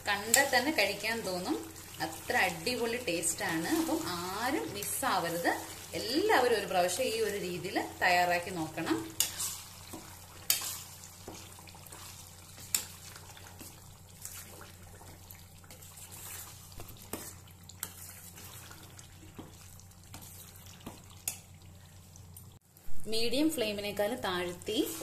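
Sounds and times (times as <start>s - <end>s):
spoon stirring thick paste: 8.8s - 21.5s.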